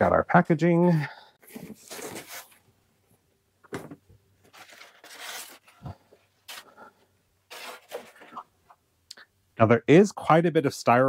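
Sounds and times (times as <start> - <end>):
cardboard scraping: 1.4 - 2.6, 4.5 - 6.8, 7.5 - 8.5
styrofoam rustling: 4.5 - 6.7, 7.5 - 8.4.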